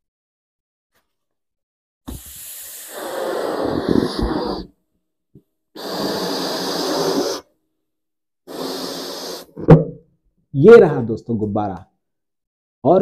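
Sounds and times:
man blowing up balloon: 2.1s - 4.8s, 5.7s - 7.6s, 8.4s - 9.8s.

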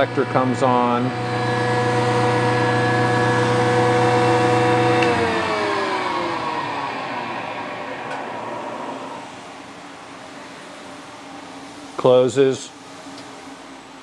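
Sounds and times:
jointer running and winding down: 0.0s - 9.2s
dust collector rushing air: 0.0s - 13.5s.

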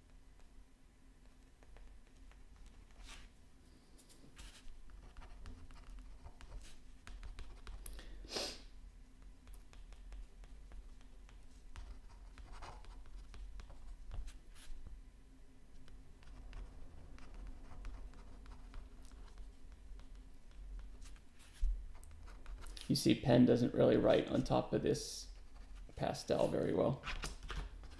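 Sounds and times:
pen scratching on paper: 4.4s - 7.8s, 9.5s - 14.8s, 15.8s - 22.8s.

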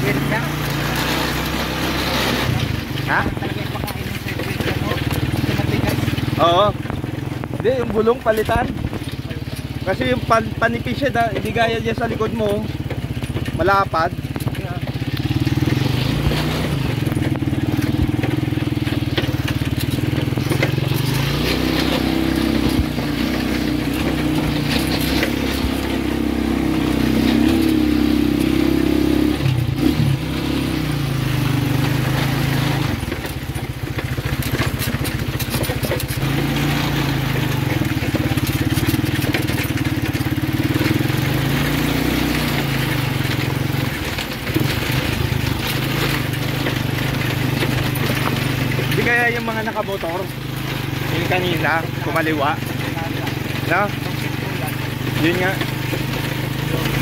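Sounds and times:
knocks and rattles on rough track: 0.0s - 57.0s
motorcycle engine revving: 0.0s - 57.0s.

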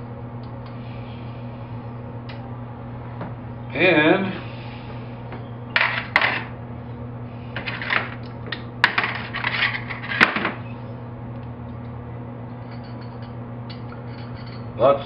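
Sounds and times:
steady low hum: 0.0s - 15.0s
tools clattering on metal tray: 5.8s - 6.5s.

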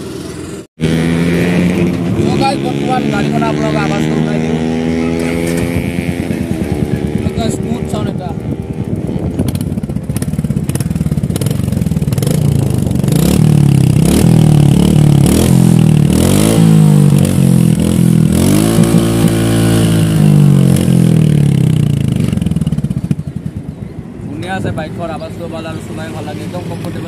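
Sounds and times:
motorcycle engine idling and revving: 0.0s - 27.0s.

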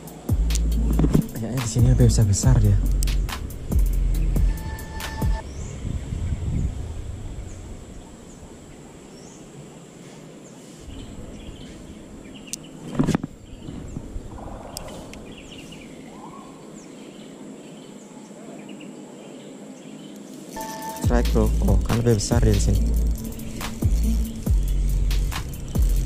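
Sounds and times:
faint bird chirps: 7.4s - 21.1s.

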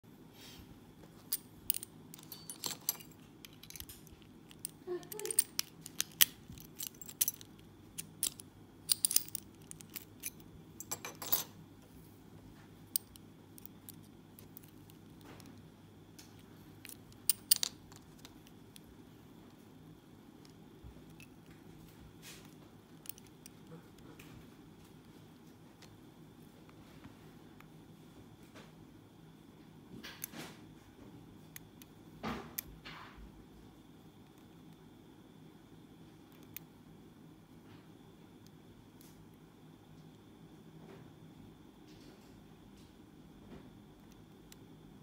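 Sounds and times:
metal padlock and keys clinking: 1.2s - 11.6s, 12.9s - 15.6s, 16.3s - 18.5s, 22.4s - 24.0s.

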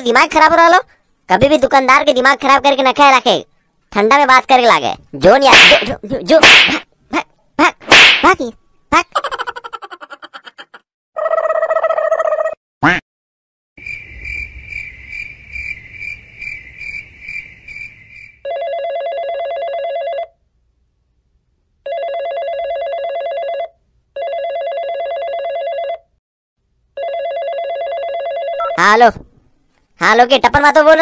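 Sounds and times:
telephone ringing: 18.4s - 20.3s, 21.9s - 26.0s, 27.0s - 28.8s.

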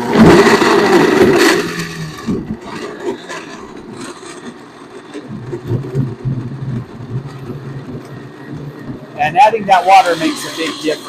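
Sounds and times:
blender running: 0.0s - 5.3s, 9.5s - 11.0s.

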